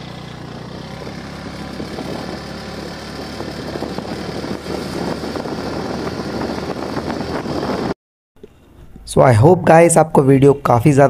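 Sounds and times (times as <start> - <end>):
scooter engine running steadily: 0.0 - 7.9
wind rush: 0.9 - 8.0.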